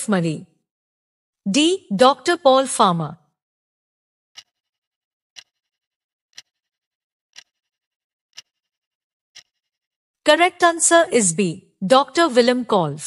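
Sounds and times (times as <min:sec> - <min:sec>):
clock-like timer ticks: 0:04.3 - 0:09.9.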